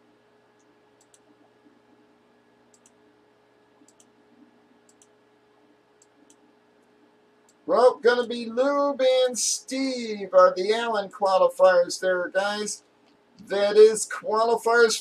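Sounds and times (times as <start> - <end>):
faint steady hum: 0.0 - 15.0
computer mouse clicks: 0.6 - 2.0, 2.7 - 3.0, 3.8 - 4.2, 4.9 - 7.6.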